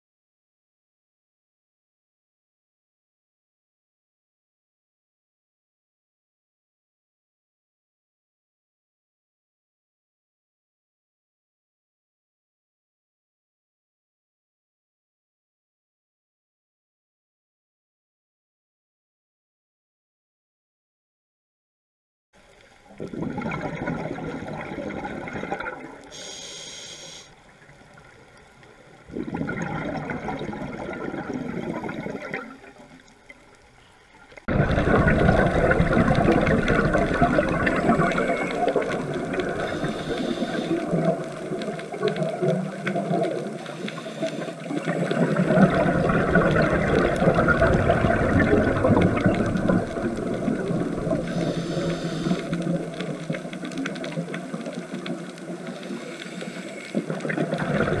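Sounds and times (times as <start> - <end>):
underwater exhaled bubbles: 22.4 - 58.0.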